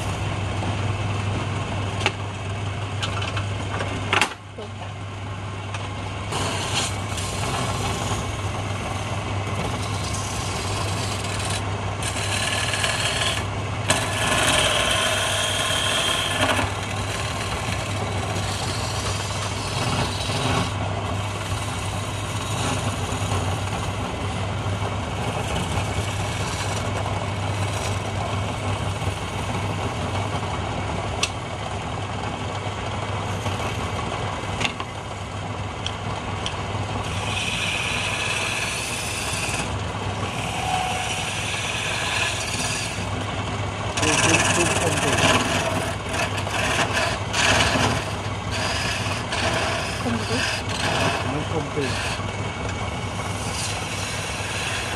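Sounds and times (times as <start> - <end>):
chisel scraping spinning wood: 0.0 - 0.8, 5.8 - 54.9
wood lathe humming: 0.0 - 0.9, 5.4 - 54.9
high-pitched whine: 40.2 - 42.8.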